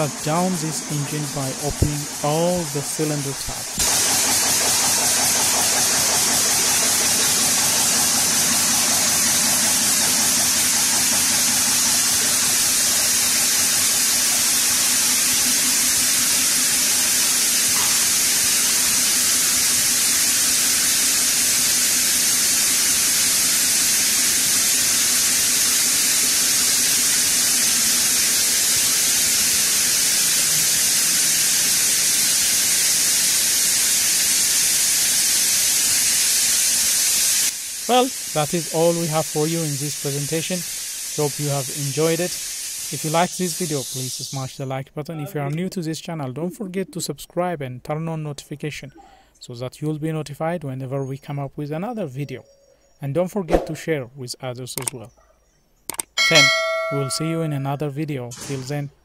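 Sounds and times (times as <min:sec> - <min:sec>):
diesel engine pulsing hiss: 0:00.0 - 0:44.7.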